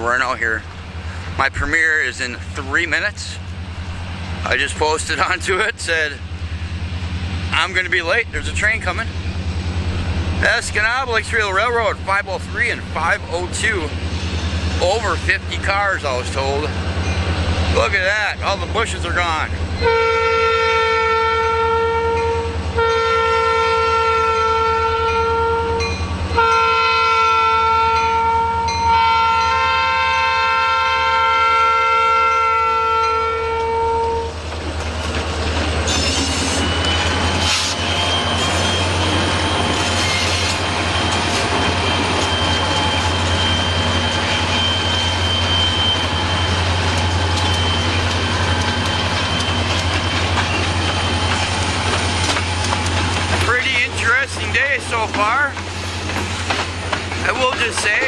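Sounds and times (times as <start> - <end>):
diesel locomotives rumbling: 0.0 - 58.0
locomotive horn blasts: 19.8 - 34.4
train wheels clacking on rails: 34.4 - 58.0.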